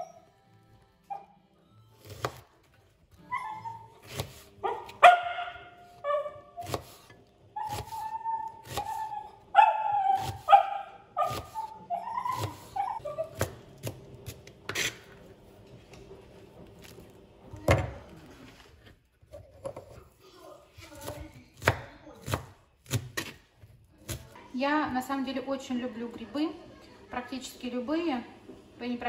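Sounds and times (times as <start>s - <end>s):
dog whining: 3.1s - 6.9s, 7.5s - 13.5s
knife chopping on cutting board: 4.0s - 5.0s, 6.6s - 9.1s, 11.2s - 11.7s, 21.0s - 23.4s.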